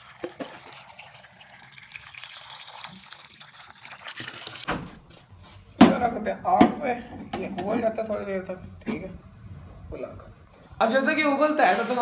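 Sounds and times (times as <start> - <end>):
water pouring into metal pot: 0.0 - 4.7.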